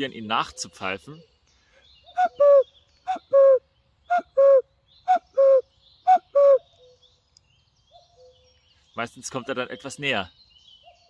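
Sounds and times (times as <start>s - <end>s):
man imitating cuckoo call: 2.1s - 6.7s.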